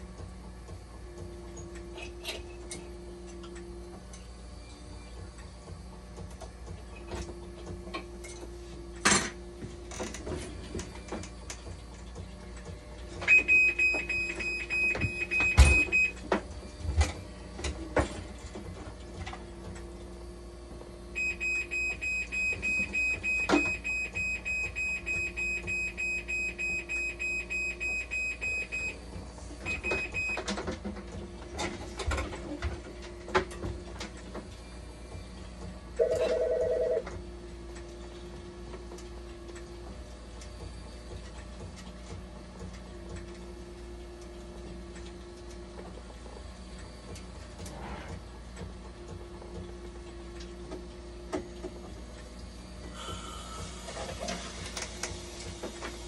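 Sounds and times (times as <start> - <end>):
machine alarm beeping rapidly: 13.3 - 16.1, 21.2 - 29.0.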